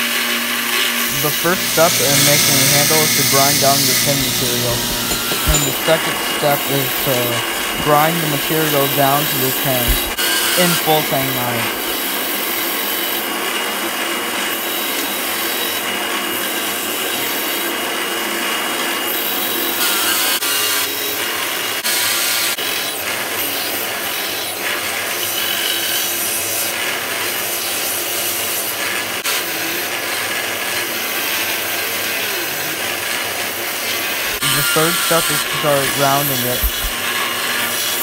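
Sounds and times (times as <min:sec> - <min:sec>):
belt grinder grinding: 0:01.0 - 0:12.0, 0:34.1 - 0:37.0.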